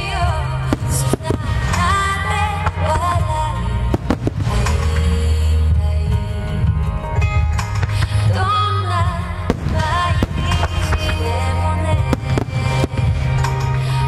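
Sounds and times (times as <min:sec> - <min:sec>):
music with wavering melody: 0:00.0 - 0:14.0
fireworks bangs: 0:00.6 - 0:05.3, 0:09.4 - 0:14.0.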